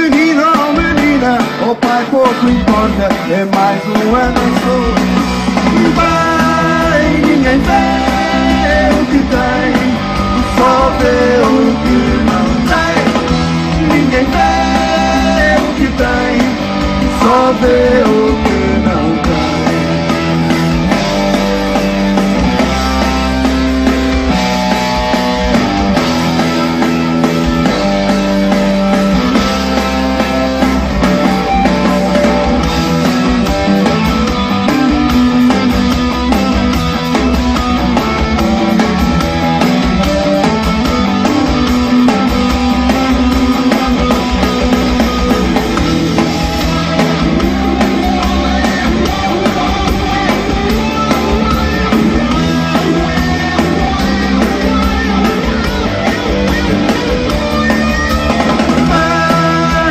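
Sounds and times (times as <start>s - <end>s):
bass guitar: 0.0s - 59.9s
drums: 0.0s - 59.9s
electric guitar: 0.0s - 59.9s.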